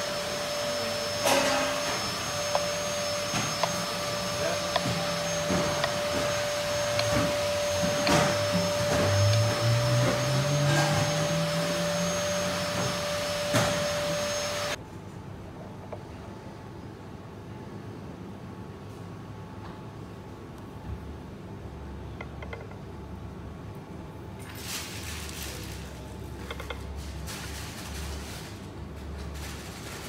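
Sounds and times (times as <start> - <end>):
faint high whine: 0.0 - 14.8
machine whirring: 0.0 - 14.8.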